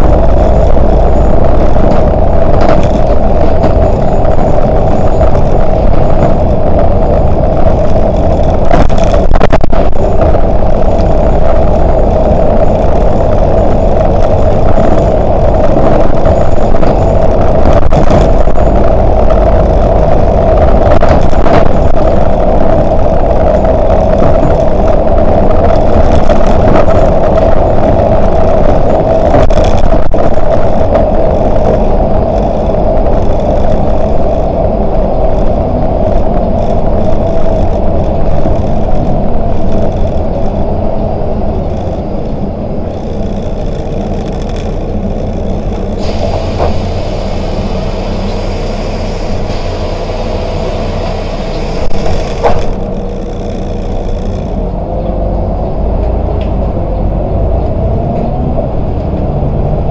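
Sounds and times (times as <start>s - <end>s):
bus engine and road drone: 0.0s - 59.9s.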